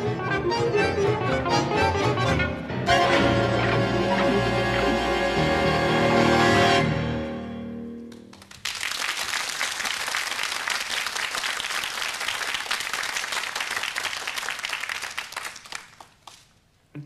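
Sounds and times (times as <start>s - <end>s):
tango ensemble held chord: 0.0s - 8.2s
audience applauding: 8.1s - 16.6s.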